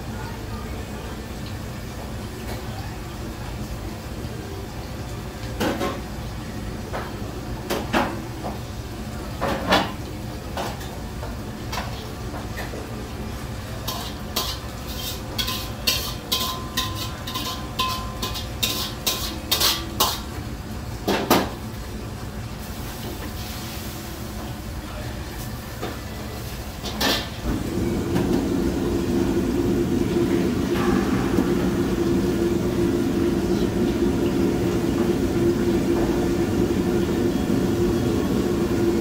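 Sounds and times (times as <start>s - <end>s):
wok burner and hood rumble: 0.0s - 39.0s
metal spatula clanking in wok: 13.9s - 20.3s.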